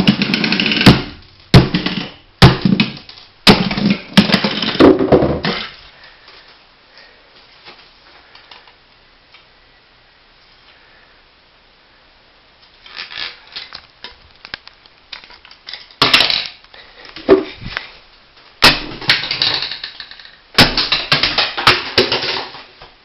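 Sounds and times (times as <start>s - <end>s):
metal and plastic parts clattering: 18.7s - 22.8s.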